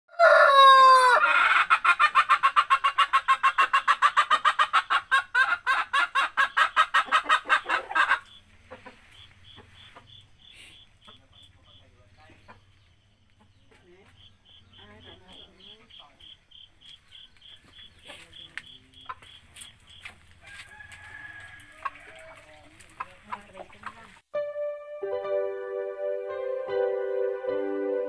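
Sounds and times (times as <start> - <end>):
rooster crowing: 0.1 - 1.6, 20.3 - 22.7
chicken clucking: 0.1 - 24.2.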